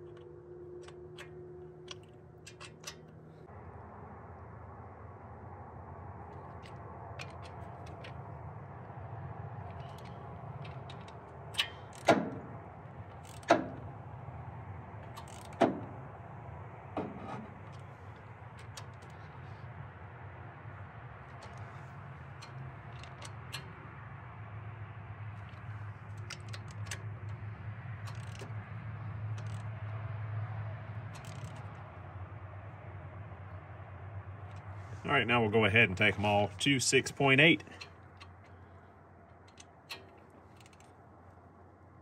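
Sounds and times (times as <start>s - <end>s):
sharp metallic clicks: 0.0s - 3.5s, 9.6s - 19.6s, 21.2s - 24.0s, 25.3s - 30.0s, 31.1s - 32.0s, 35.7s - 41.4s
faint ratchet ticks: 6.3s - 12.2s, 13.0s - 13.9s, 15.0s - 16.0s, 21.2s - 24.1s, 25.3s - 30.0s, 31.1s - 32.0s, 37.6s - 41.6s
torque wrench ratchet clicks: 13.1s - 13.6s, 15.2s - 15.7s, 28.0s - 28.5s, 29.4s - 29.7s, 31.1s - 31.7s.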